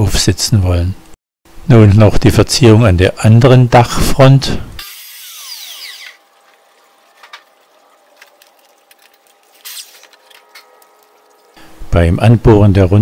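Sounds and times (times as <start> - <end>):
electric drill whirring: 4.8 - 6.8.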